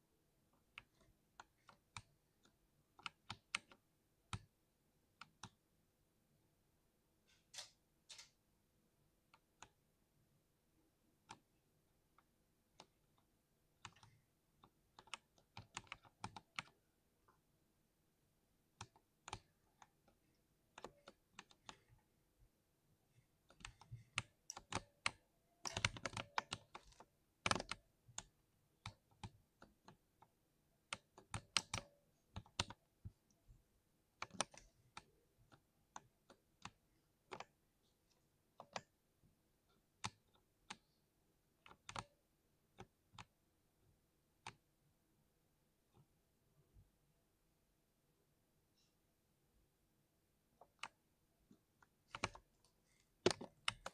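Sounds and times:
mechanical keyboard typing: 0:00.7 - 0:04.5, 0:13.8 - 0:16.9, 0:23.4 - 0:30.2, 0:30.9 - 0:32.8, 0:34.2 - 0:37.6, 0:41.6 - 0:43.4, 0:51.9 - 0:52.5, 0:53.2 - 0:53.9.

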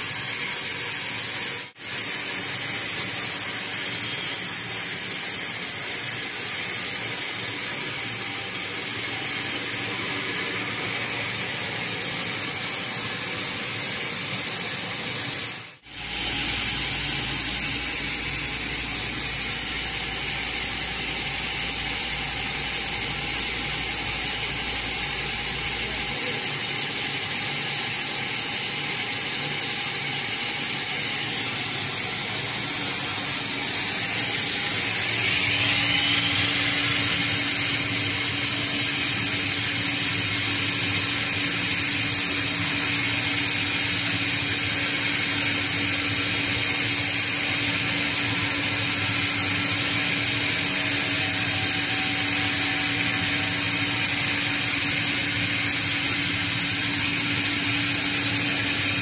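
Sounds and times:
band saw cutting wood: 0:00.0 - 0:13.1, 0:15.8 - 0:59.0.

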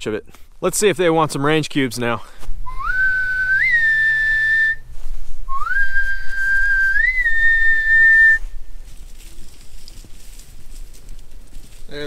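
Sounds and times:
person whistling: 0:02.6 - 0:04.9, 0:05.5 - 0:08.6.

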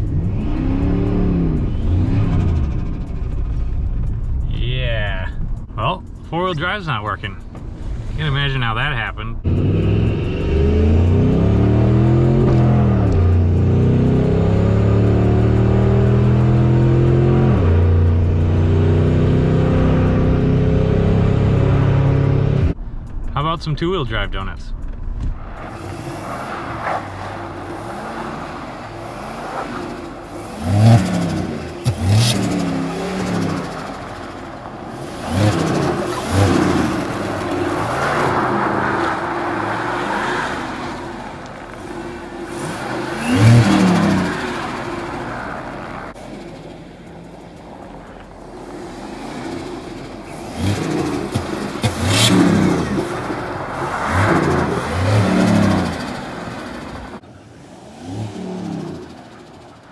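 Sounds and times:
truck engine revving: 0:00.0 - 0:23.1, 0:24.3 - 0:59.9
spinning tyres hissing on snow: 0:25.5 - 0:59.9.

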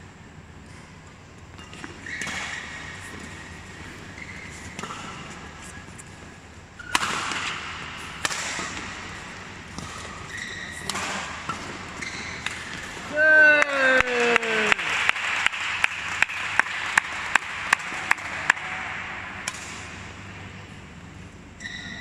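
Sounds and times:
shoes squeaking on court: 0:00.7 - 0:07.0, 0:08.7 - 0:13.1, 0:19.5 - 0:22.0
racket hitting shuttlecock: 0:01.6 - 0:05.6, 0:06.8 - 0:21.2.

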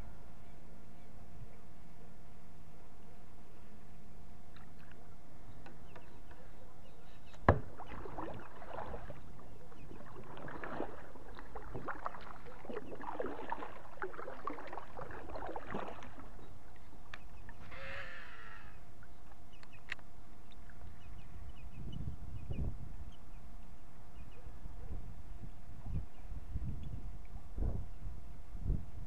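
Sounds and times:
paddle splashing water: 0:07.3 - 0:17.7.

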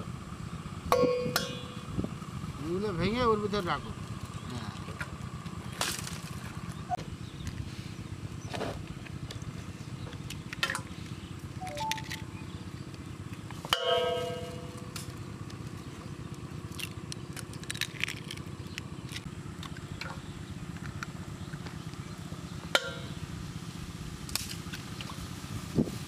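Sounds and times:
eggs being cracked: 0:16.7 - 0:19.8.

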